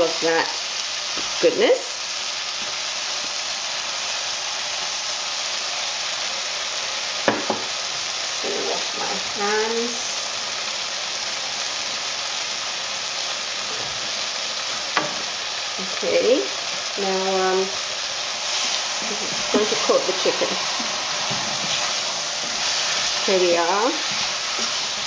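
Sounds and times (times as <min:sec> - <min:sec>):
food sizzling in a pot: 0:00.0 - 0:25.0
knock: 0:07.3 - 0:07.7.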